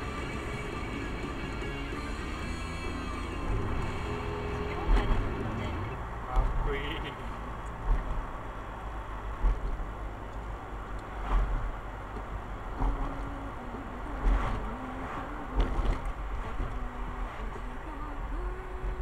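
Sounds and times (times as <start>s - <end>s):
faint music: 0.0s - 8.4s
road vehicle driving rumble: 0.0s - 19.0s.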